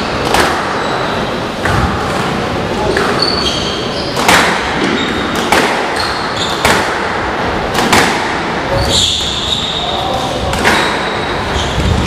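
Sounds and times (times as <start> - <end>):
squash ball hitting racket and wall: 0.0 - 12.0
shoes squeaking on wooden floor: 2.9 - 4.2, 6.0 - 6.6, 8.7 - 10.0, 10.7 - 12.0.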